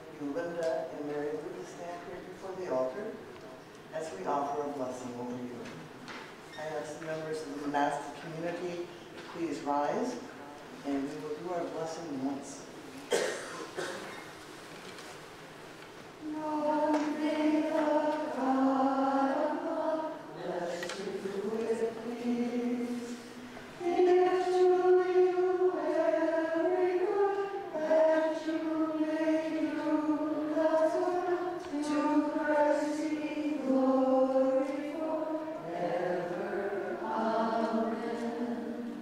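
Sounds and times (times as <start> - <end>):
group chanting slow held notes: 16.2 - 39.0.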